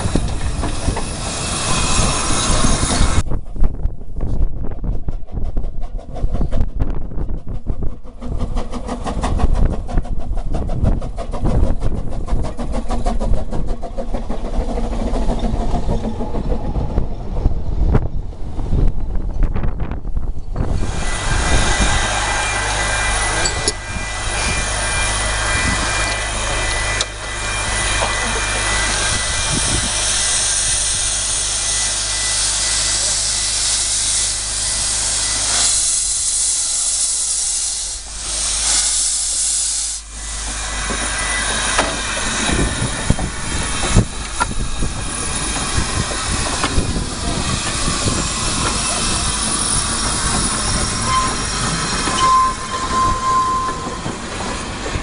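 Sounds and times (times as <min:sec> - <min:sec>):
steam locomotive hissing steam: 0:00.0 - 0:03.7, 0:05.0 - 0:17.0, 0:18.7 - 0:55.0
wind rumbling on microphone: 0:00.0 - 0:26.2, 0:29.0 - 0:31.2, 0:40.9 - 0:55.0.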